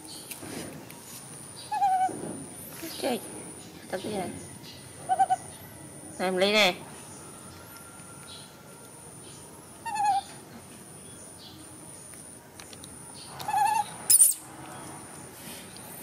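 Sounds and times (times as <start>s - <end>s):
baby monkey whimpering coos: 1.7s - 2.1s, 5.1s - 5.4s, 9.8s - 10.3s, 13.4s - 14.4s.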